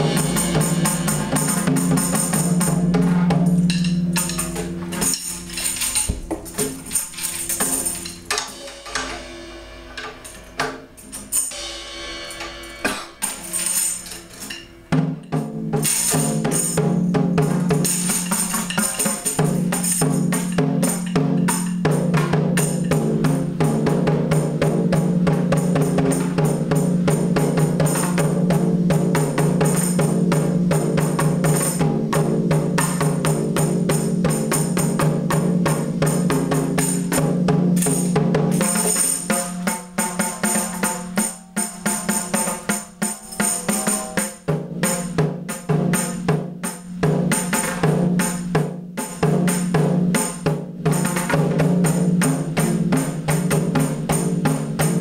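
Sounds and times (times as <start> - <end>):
drum roll: 0.0 - 55.0.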